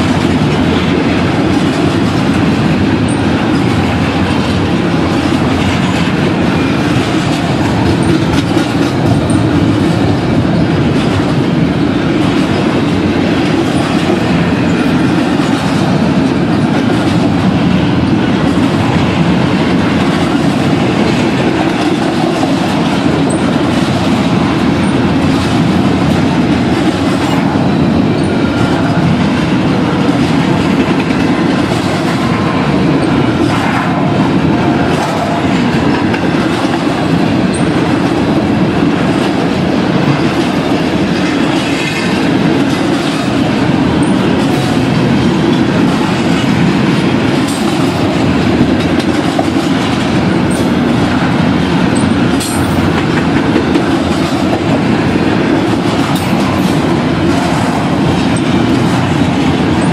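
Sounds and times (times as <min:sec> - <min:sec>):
freight train wheels on rails: 0:00.0 - 0:59.9.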